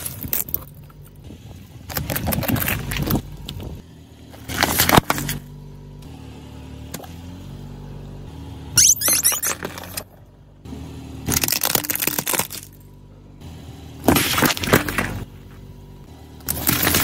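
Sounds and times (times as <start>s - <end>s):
tyre crushing cans: 14.0s - 15.2s, 16.5s - 17.0s.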